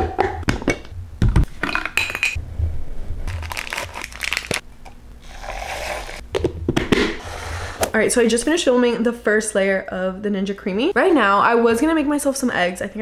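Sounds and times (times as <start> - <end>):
plastic crinkling and clicking: 3.3 - 5.0.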